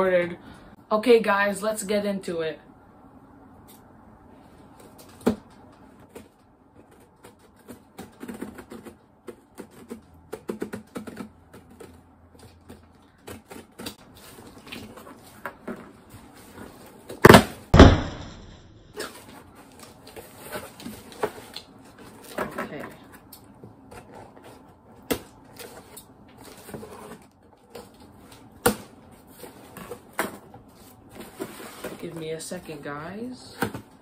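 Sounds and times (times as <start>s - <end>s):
cardboard box thumps: 17.2s - 18.4s
sharp knock: 17.3s - 18.7s.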